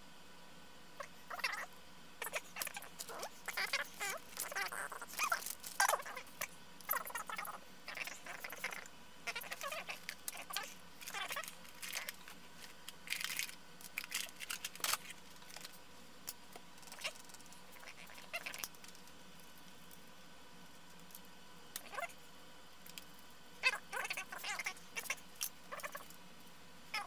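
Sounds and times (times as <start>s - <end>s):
rustling and squeaky scraping: 1.3s - 15.8s.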